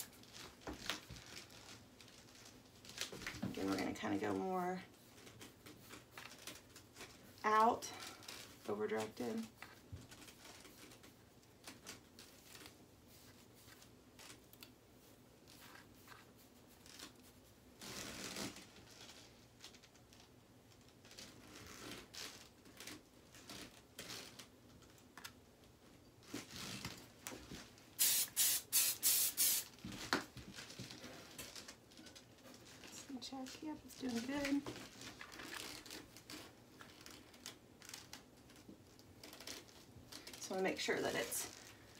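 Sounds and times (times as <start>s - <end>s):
comb rasping through hair: 3.7s - 18.7s
short hissing bursts: 28.0s - 29.7s.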